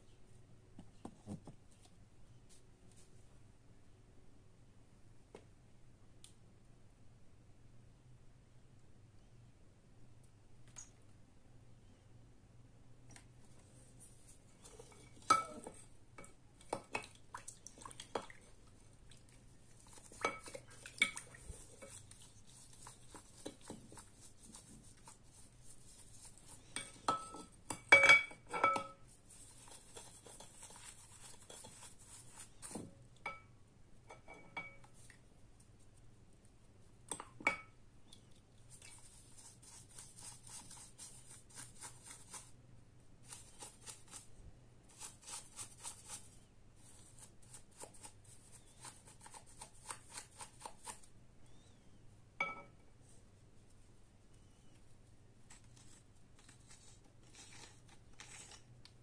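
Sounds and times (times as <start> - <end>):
brush scrubbing metal: 19.6 - 26.9, 29.2 - 32.8, 38.8 - 42.6, 44.9 - 51.0
clinks against glass bowl: 27.1 - 29.0.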